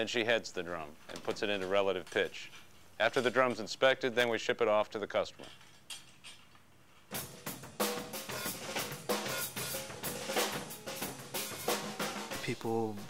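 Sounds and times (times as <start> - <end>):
drum kit playing: 7.1 - 13.0.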